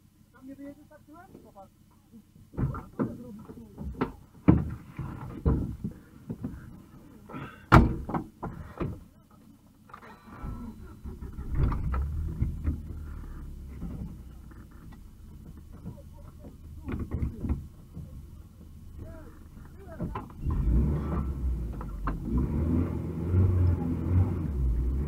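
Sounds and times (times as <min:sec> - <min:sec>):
low engine hum: 0:00.0 - 0:25.0
knocks: 0:02.6 - 0:06.6.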